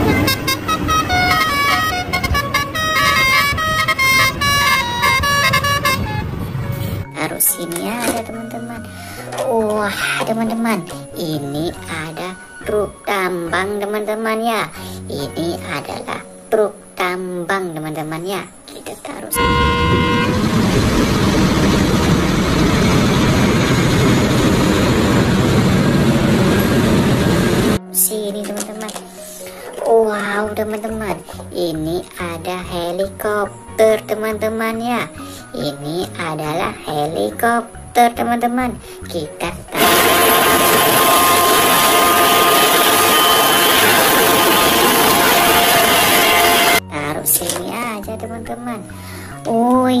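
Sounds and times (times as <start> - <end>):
musical air horn tune: 0.0 - 7.0, 19.4 - 22.2, 39.8 - 46.8
bus engine rumble: 0.0 - 7.2, 19.4 - 27.8, 39.7 - 46.8
heavy machinery running: 19.4 - 27.8, 39.8 - 46.8
steady pitched tone: 19.4 - 27.8, 39.8 - 46.8
excavator loading dirt and rock: 39.8 - 46.8.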